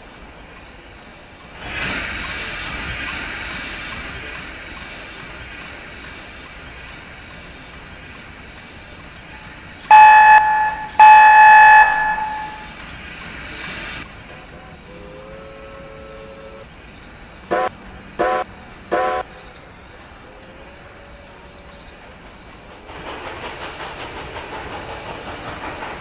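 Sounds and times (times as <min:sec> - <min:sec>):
train running noise: 0:00.0 - 0:26.0
low short whistle toot: 0:09.9 - 0:12.7
steam whistle blasts: 0:09.9 - 0:12.7, 0:17.5 - 0:19.3.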